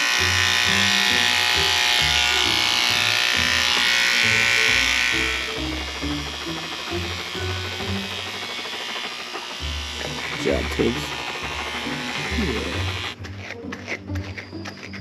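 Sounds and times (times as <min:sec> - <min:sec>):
electric clippers buzzing: 0:00.0 - 0:15.0
background music with bass: 0:09.8 - 0:15.0.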